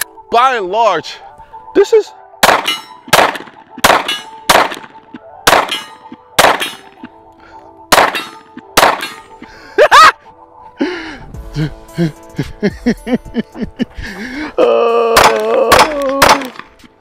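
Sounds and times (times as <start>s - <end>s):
pistol shots: 2.4s - 7.0s, 7.9s - 9.4s, 15.2s - 16.8s.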